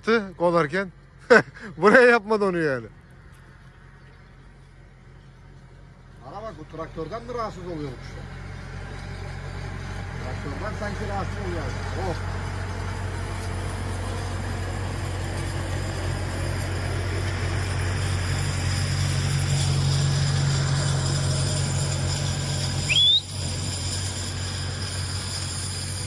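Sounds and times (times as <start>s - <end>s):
tractor engine running: 0.0s - 26.0s
loud rising whistle: 20.8s - 26.0s.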